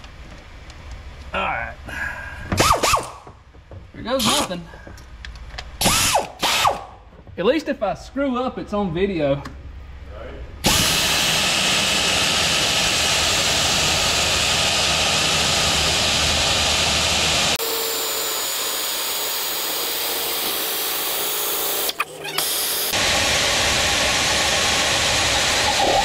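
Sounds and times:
drill cutting metal: 5.8s - 6.8s, 10.6s - 26.0s.

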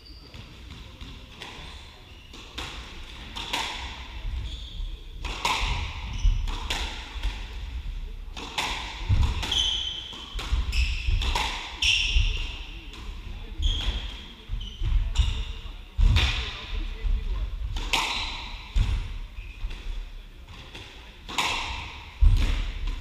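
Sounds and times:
shoes squeaking on wooden floor: 9.2s - 12.6s, 13.5s - 15.5s.

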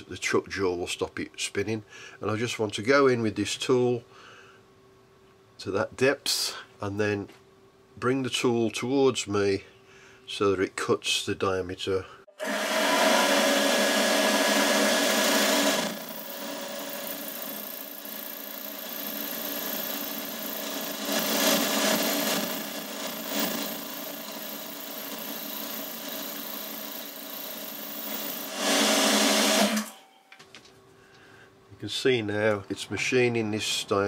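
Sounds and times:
lathe running: 12.4s - 29.9s
turning tool cutting metal: 12.4s - 30.0s.

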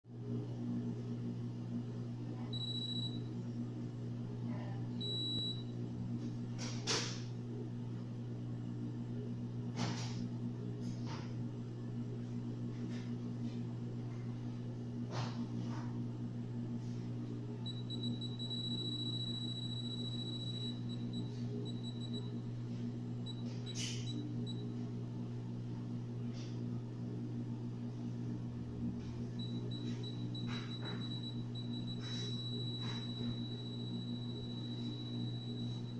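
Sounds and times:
steady low hum: 0.1s - 35.9s
short high-pitched beeps: 17.7s - 22.3s, 29.4s - 35.9s.

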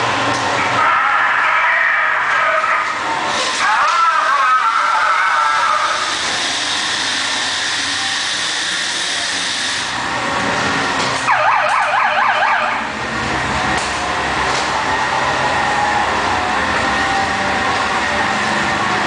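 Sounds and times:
ride car rumbling on track: 0.0s - 19.0s
loud steady hiss: 6.0s - 10.0s
warbling siren-like wail: 11.3s - 13.0s.

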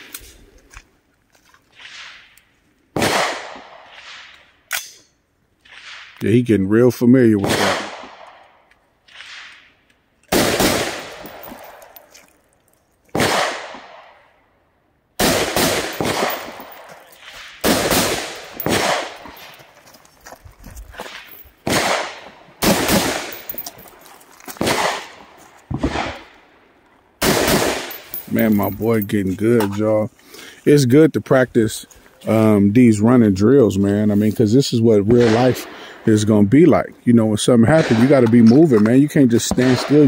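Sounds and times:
rifle shots with echo: 2.9s - 4.3s, 7.3s - 9.6s, 10.3s - 11.9s, 13.1s - 14.3s, 15.2s - 19.5s, 21.6s - 23.8s, 24.6s - 26.4s, 27.2s - 28.8s, 35.1s - 35.8s, 37.7s - 38.6s, 39.4s - 40.0s.

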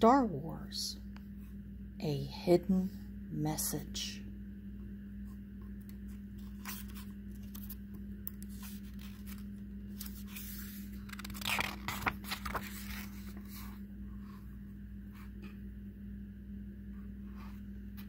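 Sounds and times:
steady low hum: 0.0s - 18.0s
book cover paper rustle: 6.0s - 13.8s.

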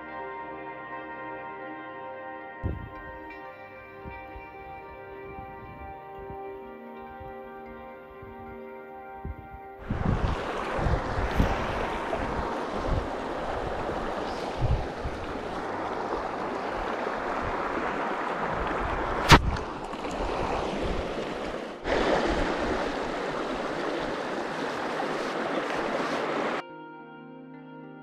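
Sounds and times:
creek running over stones: 9.8s - 26.6s.

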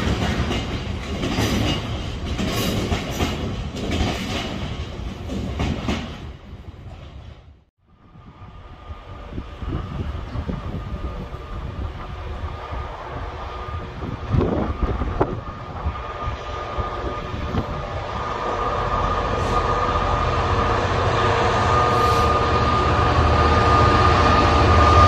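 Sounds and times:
locomotive engine with whine: 7.9s - 25.0s.

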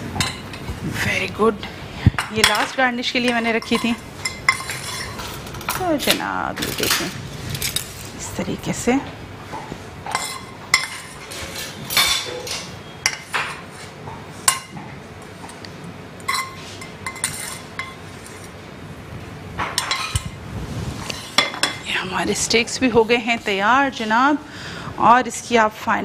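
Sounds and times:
utensils clinking on plates: 0.1s - 0.6s, 2.2s - 8.1s, 10.0s - 18.6s, 19.6s - 20.4s, 21.0s - 21.9s.

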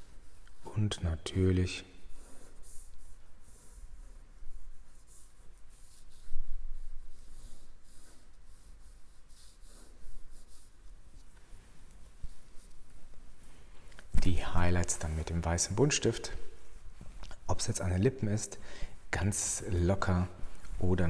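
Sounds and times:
pencil scratching on paper: 2.0s - 11.4s.

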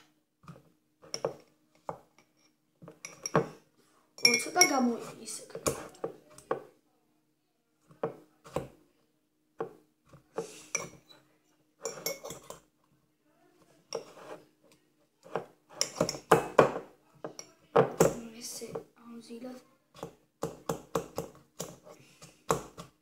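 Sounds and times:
metal utensil scraping ceramic mug: 11.8s - 12.5s, 13.9s - 14.4s.

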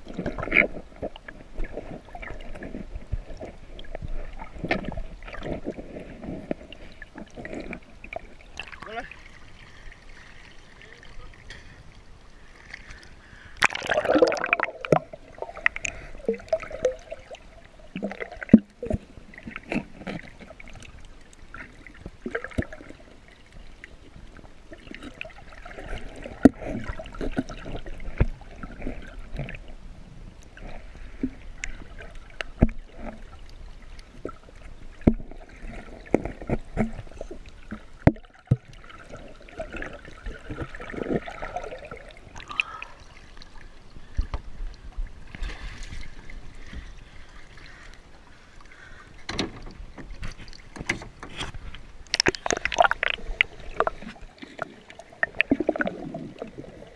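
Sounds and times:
water sloshing and gurgling: 0.0s - 56.9s
water splash: 13.6s - 20.2s, 52.0s - 56.9s
sharp clicks and knocks: 49.2s - 53.2s.

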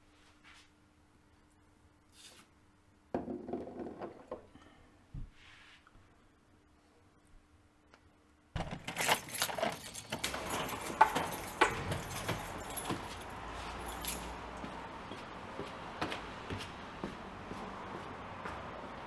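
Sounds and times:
outdoor background hum: 0.0s - 19.0s
keys jangling in a door lock: 8.6s - 14.6s.

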